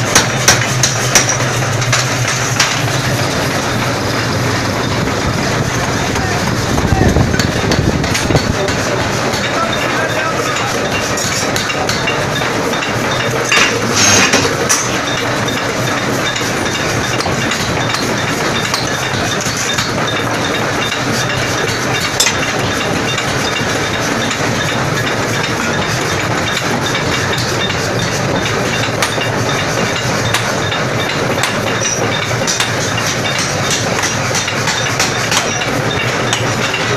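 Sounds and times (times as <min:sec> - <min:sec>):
sharp metallic clinks and knocks: 0:00.0 - 0:05.9, 0:07.2 - 0:36.9
power hammer running: 0:00.0 - 0:36.9.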